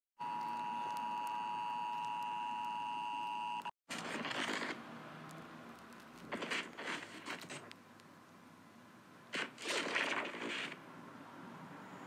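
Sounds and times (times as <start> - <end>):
hissing static: 0.2 - 2.9, 5.7 - 7.8, 9.3 - 10.8.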